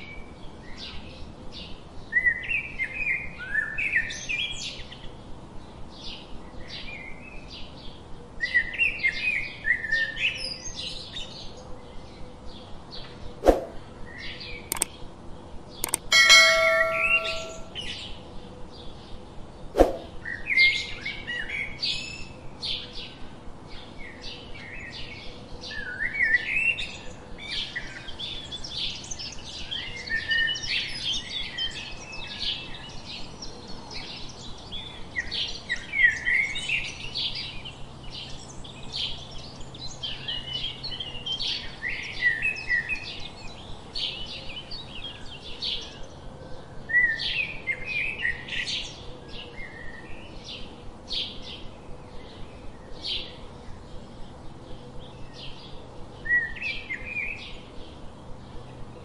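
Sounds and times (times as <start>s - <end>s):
small birds chirping: 14.1s - 15.0s
sharp click: 14.7s - 14.9s, 15.8s - 17.8s.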